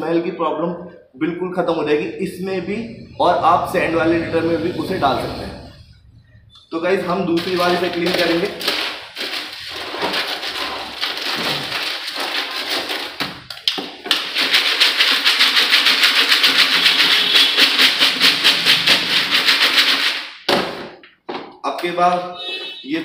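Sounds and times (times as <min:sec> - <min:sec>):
hand raking litter pellets: 0:07.4 - 0:13.2
pellets rattling in plastic tray: 0:07.4 - 0:20.4.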